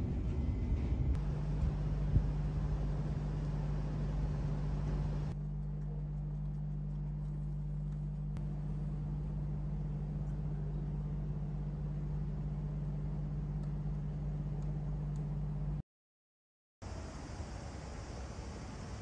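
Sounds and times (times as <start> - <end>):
steady low hum: 0.0 - 15.8.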